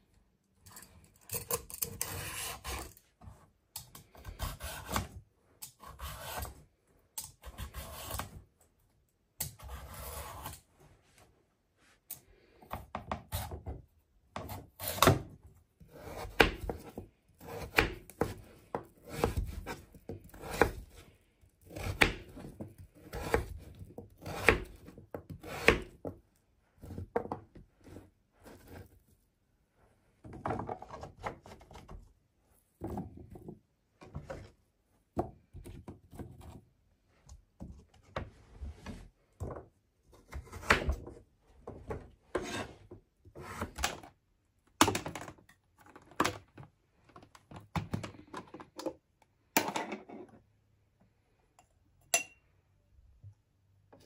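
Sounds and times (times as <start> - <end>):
knife on plastic chopping board: 1.3 - 3.0, 4.2 - 6.6, 42.3 - 43.9.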